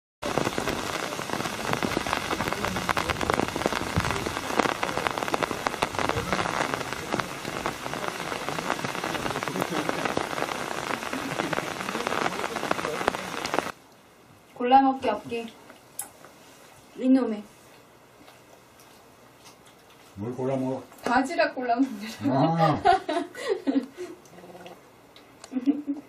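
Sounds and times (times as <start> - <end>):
raindrops ticking close by: 0.2 - 13.8
steady rain falling: 0.2 - 13.9, 22.1 - 24.5.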